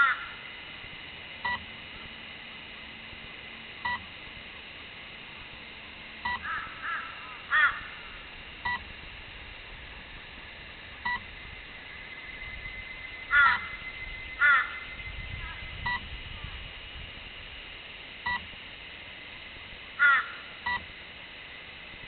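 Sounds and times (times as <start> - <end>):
bird cawing loudly: 0.0 - 0.4, 6.4 - 8.2, 13.3 - 15.6, 20.0 - 20.5.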